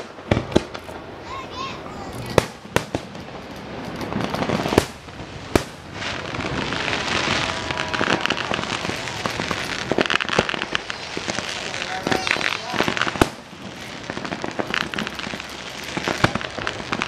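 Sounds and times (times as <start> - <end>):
firework bangs: 0.0 - 17.0
fireworks crackling and popping: 0.0 - 17.0.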